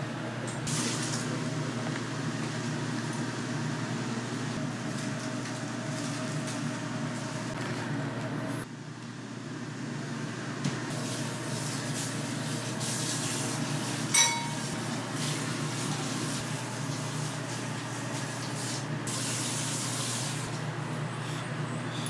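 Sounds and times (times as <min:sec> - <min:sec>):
metal or glass clink: 0:14.2 - 0:14.6.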